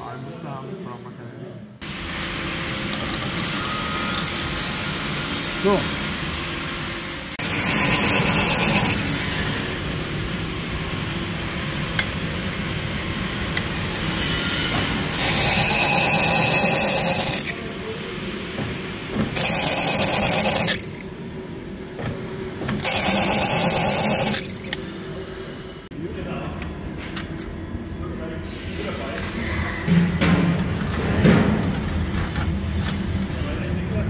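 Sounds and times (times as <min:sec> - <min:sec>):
drill press motor running: 0:07.3 - 0:09.8, 0:15.0 - 0:17.7, 0:19.2 - 0:21.1, 0:22.6 - 0:24.8
drill bit cutting steel: 0:07.4 - 0:09.5, 0:15.1 - 0:17.7, 0:19.4 - 0:21.0, 0:22.8 - 0:24.8.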